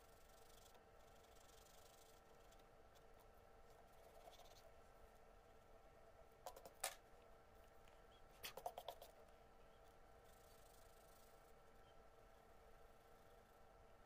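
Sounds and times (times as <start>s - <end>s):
faint steady hum: 0.0s - 14.0s
pencil tapping and scratching on paper: 6.4s - 7.0s, 8.4s - 9.2s.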